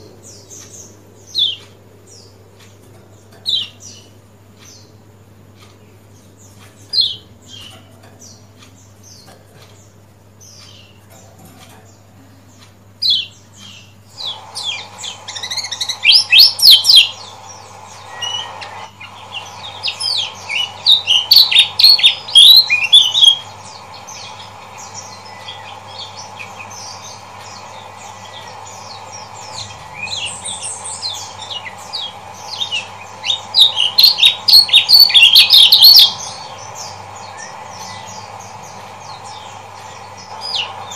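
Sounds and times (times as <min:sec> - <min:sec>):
steady low hum: 0:00.0 - 0:40.9
bird chirping high sharp notes: 0:13.1 - 0:40.9.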